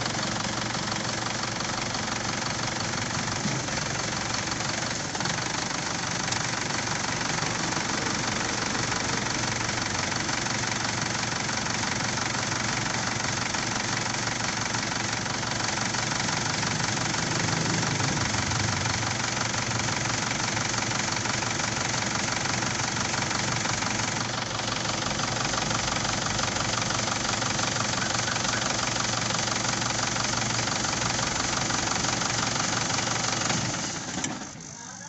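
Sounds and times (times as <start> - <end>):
diesel engine idling: 0.0 - 35.0
engine stalling: 0.0 - 35.0.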